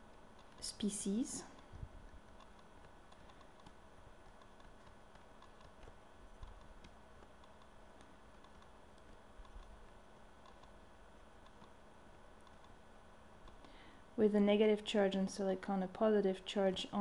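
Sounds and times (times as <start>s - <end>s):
stylus tapping on tablet: 2.3s - 10.8s.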